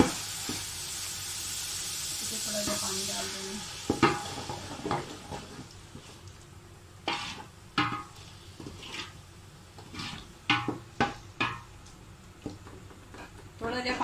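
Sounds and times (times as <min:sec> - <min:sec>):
spoon scraping metal pot: 0:07.1 - 0:08.1, 0:09.8 - 0:10.3.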